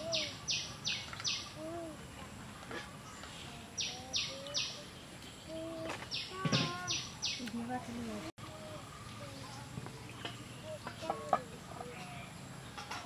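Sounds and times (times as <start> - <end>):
harsh chirping calls: 0.0 - 1.6, 3.6 - 7.4.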